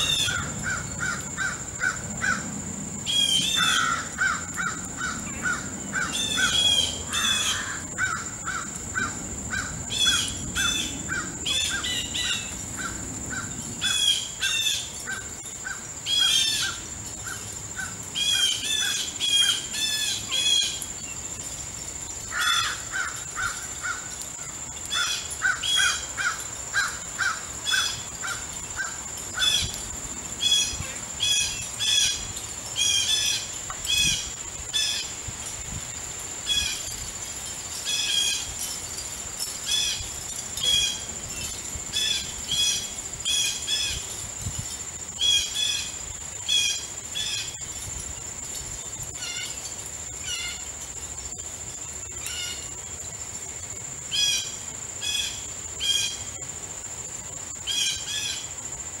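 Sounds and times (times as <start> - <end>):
crows cawing: 0.0 - 2.4, 3.4 - 14.1, 22.3 - 24.2.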